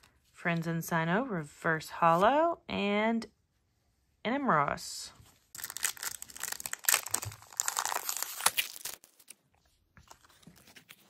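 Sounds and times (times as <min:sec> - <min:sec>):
foil wrapper tearing and crinkling: 0:05.5 - 0:09.4.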